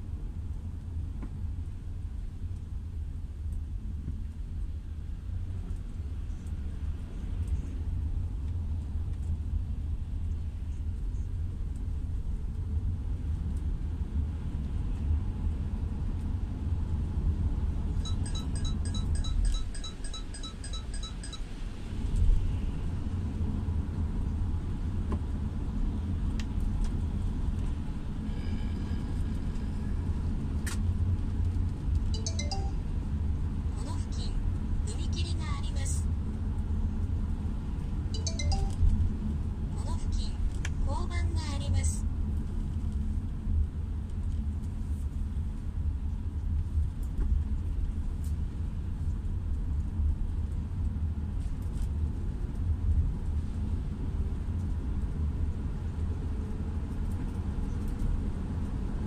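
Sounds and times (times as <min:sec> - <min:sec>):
short high electronic beeps: 0:18.0 - 0:21.5, 0:32.2 - 0:32.9, 0:38.2 - 0:38.8.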